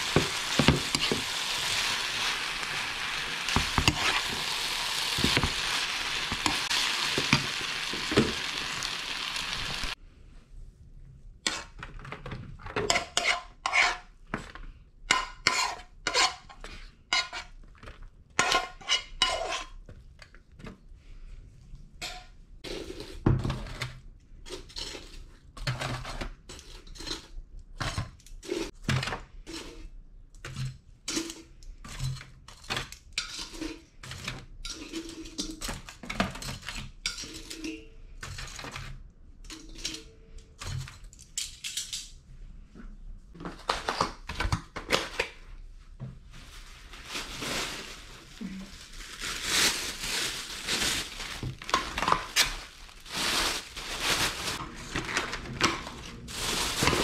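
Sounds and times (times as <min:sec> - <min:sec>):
metal spoon scraping frying pan: 0:00.0 - 0:08.1, 0:12.9 - 0:14.1, 0:15.1 - 0:17.6, 0:18.4 - 0:19.8, 0:33.2 - 0:37.9.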